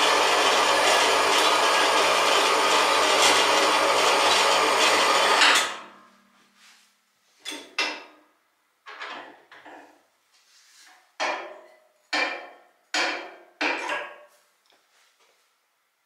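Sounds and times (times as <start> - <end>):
band saw cutting metal: 0.0 - 5.8
motor hum: 0.0 - 5.8.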